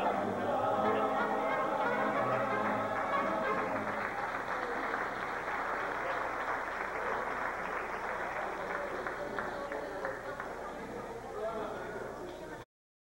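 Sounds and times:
mariachi band last notes: 0:00.0 - 0:05.5
audience clapping: 0:01.8 - 0:10.8.

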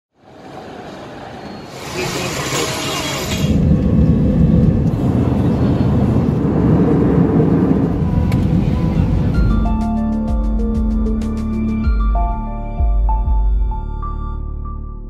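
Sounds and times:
jet engine rumble in cabin: 0:03.5 - 0:09.8.

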